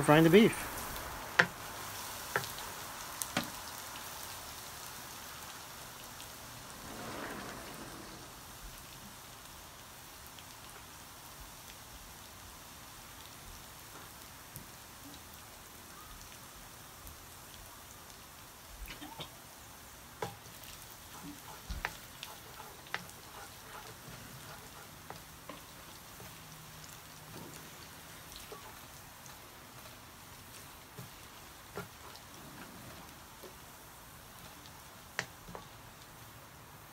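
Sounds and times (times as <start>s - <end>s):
garlic sizzling in hot oil: 0.0s - 36.9s
oil popping and crackling: 0.4s - 7.0s, 17.0s - 36.6s.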